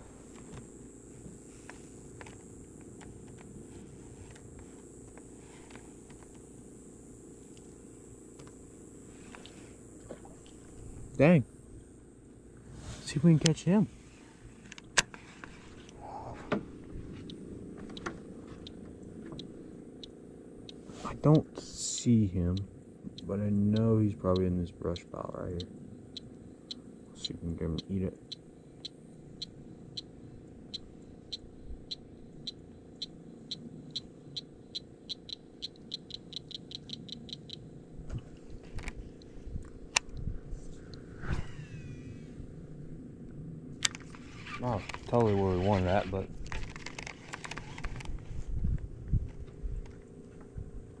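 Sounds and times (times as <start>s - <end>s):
frog calling with sharp clicks: 22.6s - 30.1s, 30.7s - 37.6s.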